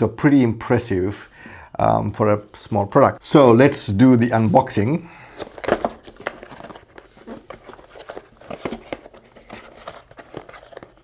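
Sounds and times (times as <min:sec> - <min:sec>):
cardboard box being opened: 0:05.4 - 0:11.0.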